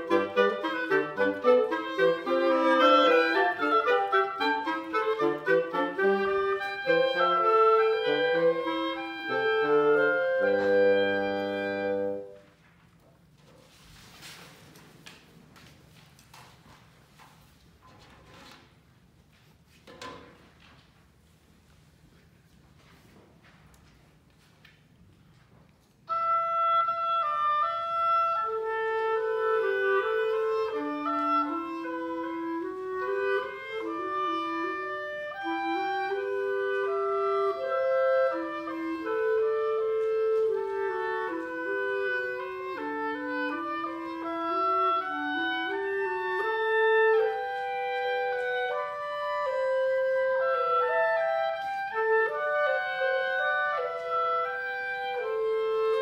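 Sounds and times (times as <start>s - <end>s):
woodwind trio playing: 0.0s - 14.2s, 25.8s - 56.0s.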